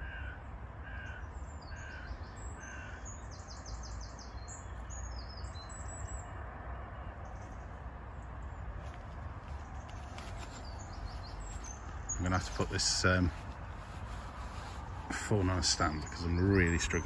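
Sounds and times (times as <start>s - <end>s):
crow cawing: 0.0s - 3.2s
small birds chirping: 0.9s - 6.3s, 8.4s - 17.0s.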